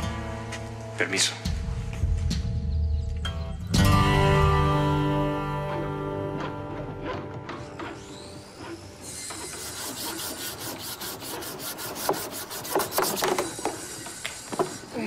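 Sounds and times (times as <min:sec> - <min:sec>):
sanding block rasping on wood: 0:07.9 - 0:15.0.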